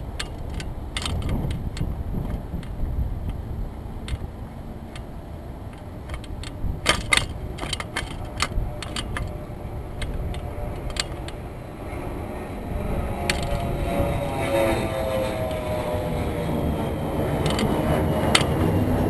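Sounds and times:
jet airliner whine: 0.0s - 19.0s
wind rumbling on microphone: 0.0s - 19.0s
sharp clicks and knocks: 0.1s - 3.4s, 4.0s - 4.3s, 5.7s - 11.4s, 17.4s - 18.8s.

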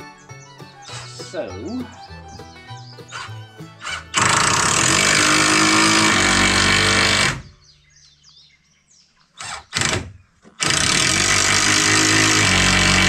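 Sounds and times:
cordless driver driving screw: 3.1s - 7.5s, 9.4s - 13.0s.

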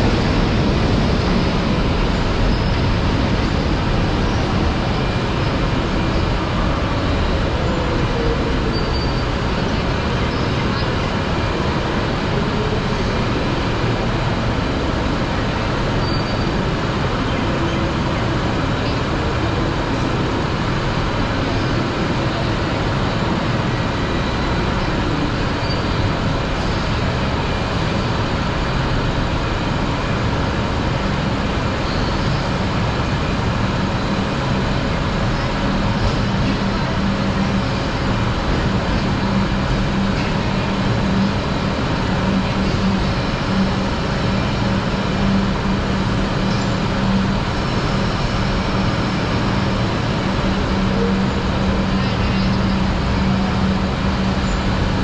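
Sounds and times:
low engine hum: 0.0s - 55.0s
rumble of vehicles and trains: 0.0s - 55.0s.

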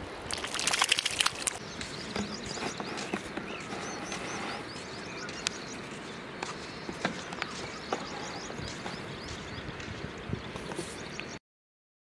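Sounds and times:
splashes in shallow water: 0.0s - 1.9s
small birds chirping: 0.3s - 11.4s.

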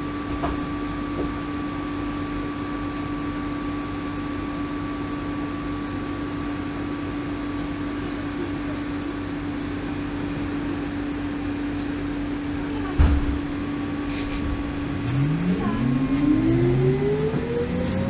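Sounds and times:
bus interior hum with tones: 0.0s - 18.0s.

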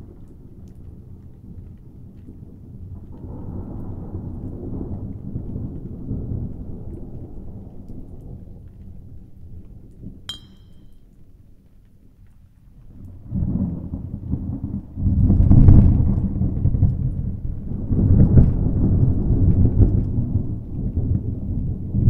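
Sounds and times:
rolling thunder rumble: 0.0s - 10.2s, 13.1s - 22.0s
short bright clink: 10.3s - 11.0s.

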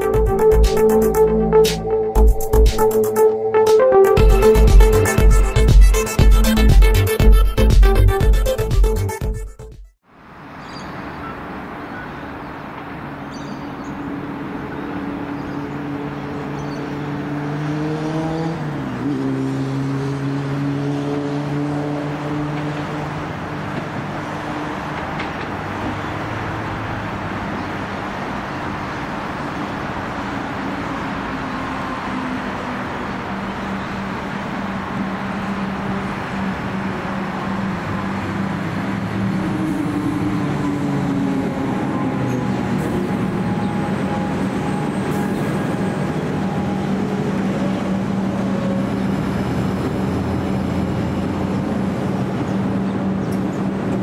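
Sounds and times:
electric train whine: 24.0s - 54.0s.

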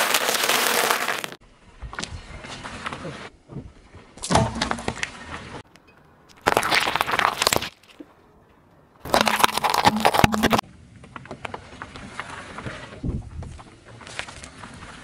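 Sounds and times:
tyre crackling on road: 0.0s - 1.4s, 9.0s - 10.6s
tyre crushing and crunching: 6.4s - 8.0s, 9.0s - 10.6s.

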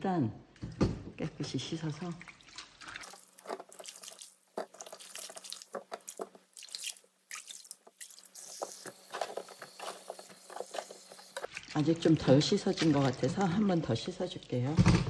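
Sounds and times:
water dripping: 1.7s - 14.8s
hands splashing in sink water: 2.0s - 14.6s
faucet running: 2.9s - 14.6s.

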